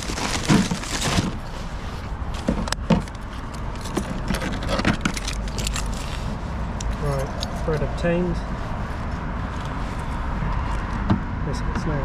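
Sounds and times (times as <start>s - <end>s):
paper bag rustling: 0.0s - 6.4s.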